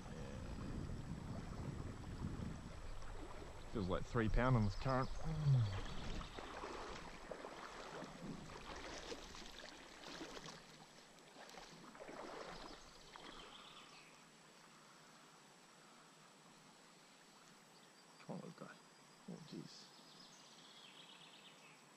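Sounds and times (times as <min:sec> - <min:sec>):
river water splashing: 0:00.0 - 0:14.5.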